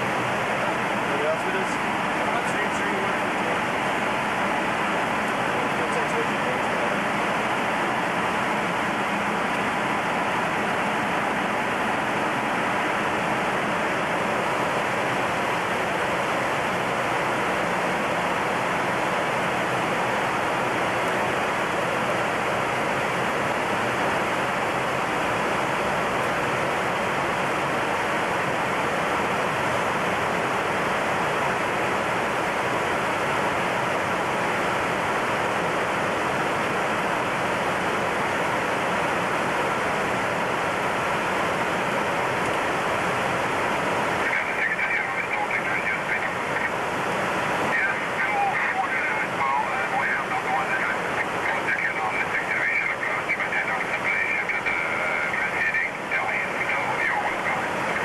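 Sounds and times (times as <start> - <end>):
aircraft cockpit engine and air rush: 0.0 - 58.0
faint steady tones: 0.0 - 58.0.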